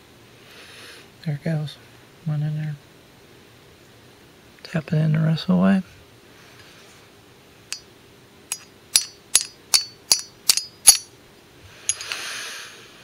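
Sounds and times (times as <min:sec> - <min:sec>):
hammer tapping metal pin: 0:08.5 - 0:11.1, 0:11.9 - 0:12.2.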